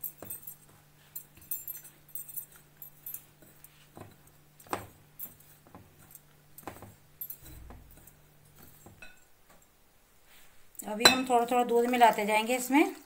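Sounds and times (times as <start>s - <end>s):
clinks against glass bowl: 6.0s - 9.3s, 11.0s - 11.5s
flour being mixed by hand: 10.2s - 13.0s.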